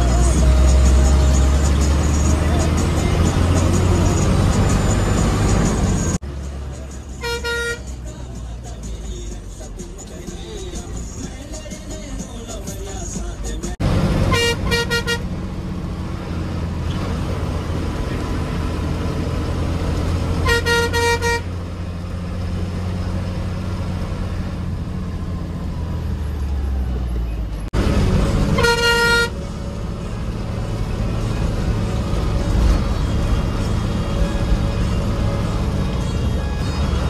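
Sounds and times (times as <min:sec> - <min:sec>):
bus engine droning: 0:00.0 - 0:37.0
bus horn toots: 0:07.1 - 0:08.1, 0:14.2 - 0:15.4, 0:20.2 - 0:21.7, 0:28.0 - 0:30.1.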